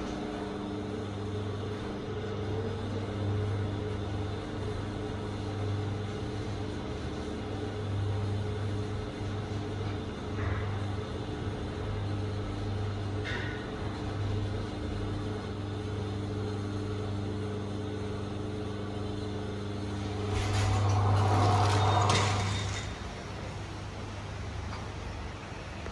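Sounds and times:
lift electrical hum: 0.0 - 25.9
sliding lift doors opening: 19.9 - 23.6.

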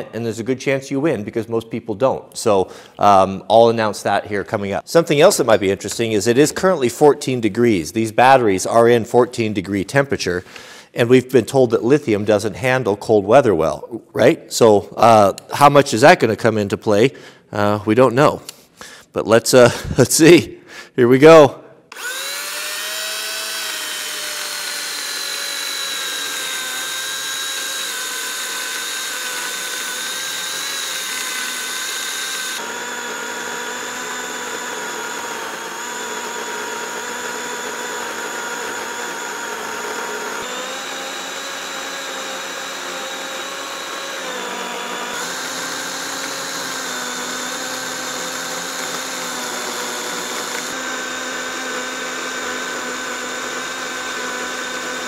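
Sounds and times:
electric chainsaw cutting wood: 21.9 - 55.0.

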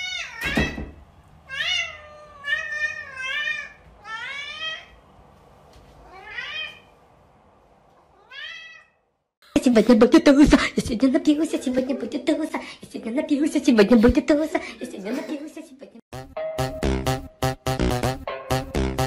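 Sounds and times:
cat meowing: 0.0 - 0.8, 1.5 - 5.0, 6.0 - 6.9, 8.1 - 9.0.

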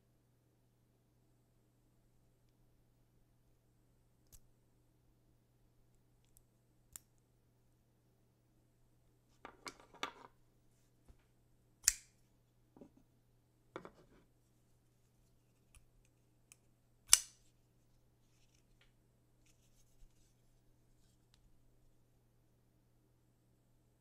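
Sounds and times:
folding knife clicks and snaps: 11.8 - 12.2, 16.5 - 17.4.

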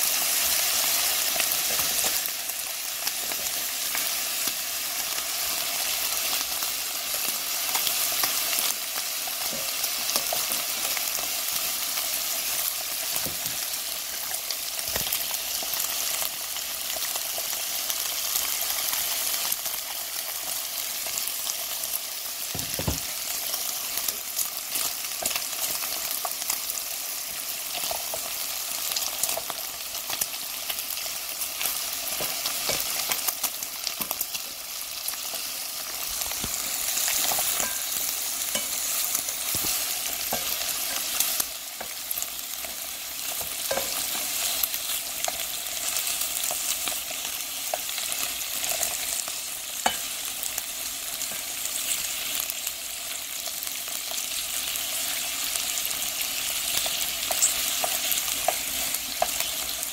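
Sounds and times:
meat sizzling in a pan: 0.0 - 59.9
tongs knocking and scraping on pan: 22.5 - 23.2, 36.3 - 44.6, 49.8 - 50.2.

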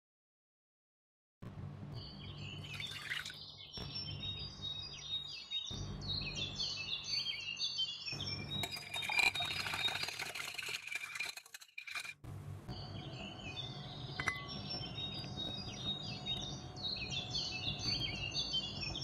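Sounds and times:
small birds chirping: 2.0 - 10.6, 12.7 - 19.0
utensil clinking in glass bowl: 8.6 - 12.2
low steady hum: 12.2 - 19.0.

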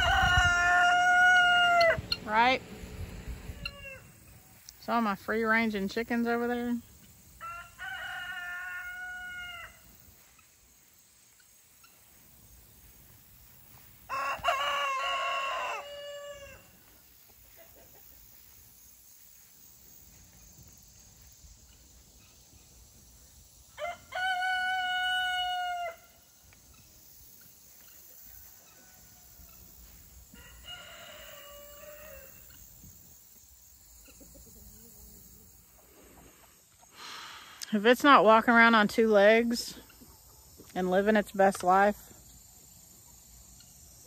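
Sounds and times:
rooster crowing: 0.0 - 2.2, 3.4 - 4.3, 7.4 - 9.8, 14.0 - 16.9, 23.7 - 26.2, 28.3 - 32.6.

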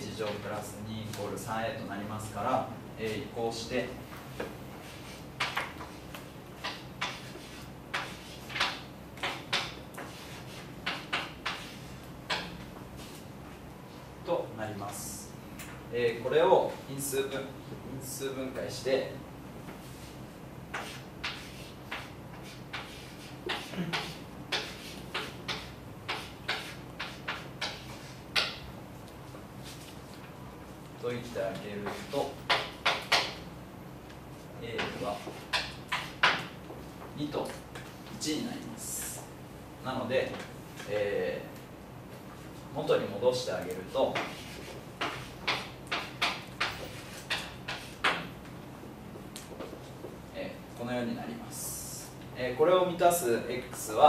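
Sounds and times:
chalk scratching on blackboard: 4.8 - 6.0, 6.6 - 12.4, 19.8 - 28.6, 31.8 - 33.4, 34.8 - 36.4, 44.1 - 48.2.

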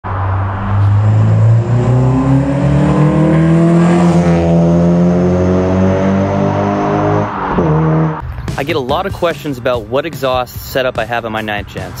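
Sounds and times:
car engine accelerating: 0.0 - 8.3.

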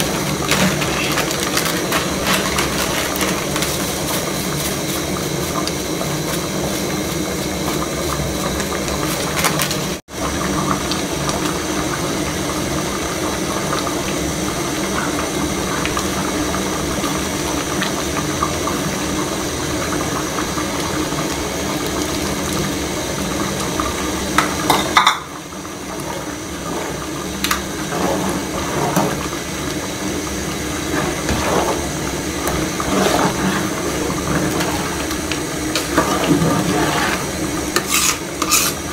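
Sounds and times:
soup boiling in a pot: 0.0 - 38.9
metal spoon scraping pot: 37.8 - 38.8.

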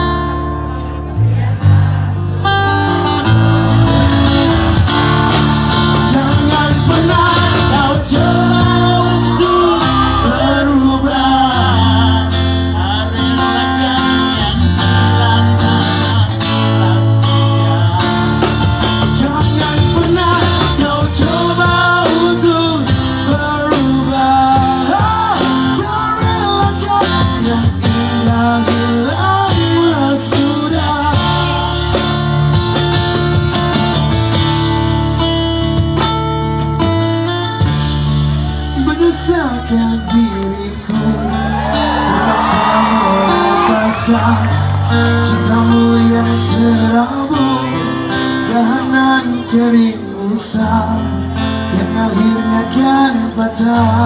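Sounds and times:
strummed acoustic guitar: 0.0 - 39.0, 39.7 - 54.0
electric bass: 0.0 - 54.0
drum kit beat: 3.4 - 10.9, 11.6 - 38.4.

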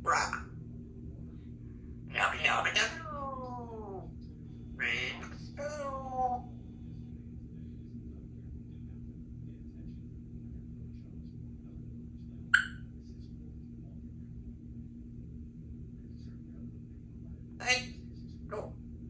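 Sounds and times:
low room hum: 0.0 - 19.0
parrot chirp: 2.1 - 4.0, 4.8 - 6.5, 12.6 - 12.8.

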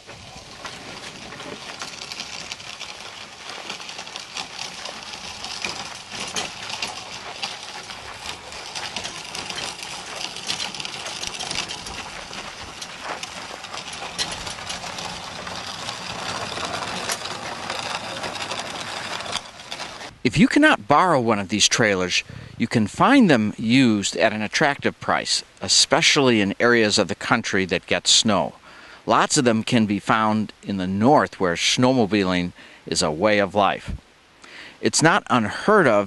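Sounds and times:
trailer rolling over gravel: 0.0 - 33.9, 34.9 - 36.0.

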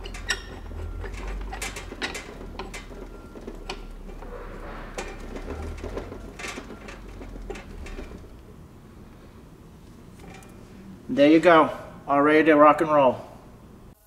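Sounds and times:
metal threads clicking and rubbing: 0.0 - 8.5.

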